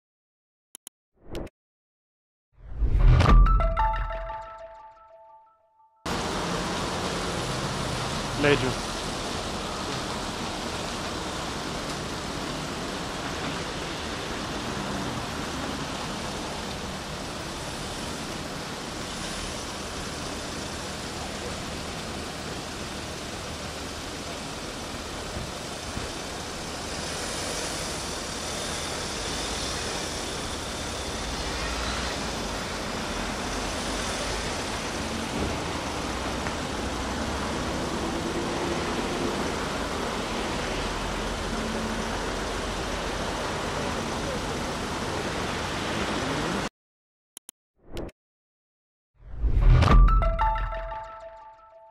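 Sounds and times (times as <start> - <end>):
road traffic hiss: 6.1 - 46.7.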